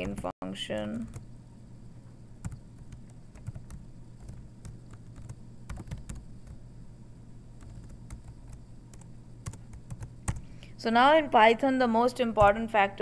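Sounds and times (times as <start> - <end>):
faint low hum: 0.0 - 13.0
keyboard typing clicks: 2.4 - 6.6, 7.6 - 10.5.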